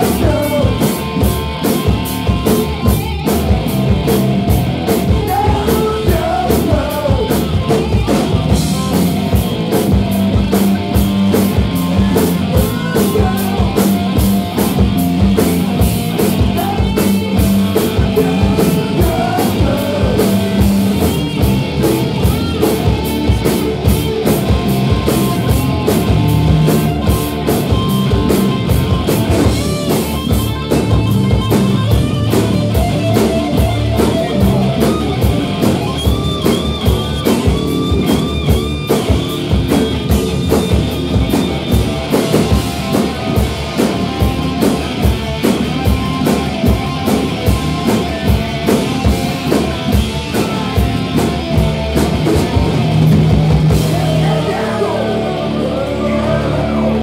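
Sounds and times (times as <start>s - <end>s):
voices singing: 0.0s - 1.1s, 4.9s - 8.7s, 10.7s - 27.0s, 53.4s - 57.0s
drum kit steady beat: 0.0s - 55.6s
bass guitar: 0.0s - 57.0s
electric guitars: 0.0s - 57.0s.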